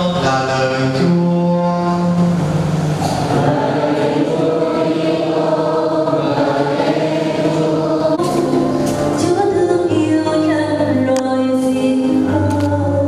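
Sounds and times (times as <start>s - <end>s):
choir singing a hymn: 2.6s - 10.5s.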